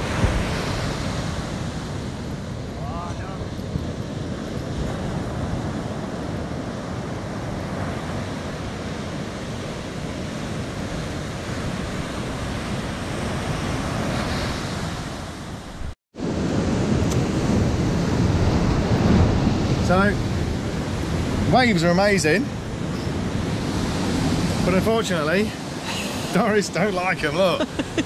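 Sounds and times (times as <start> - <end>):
waves breaking on shore: 0.0 - 28.0.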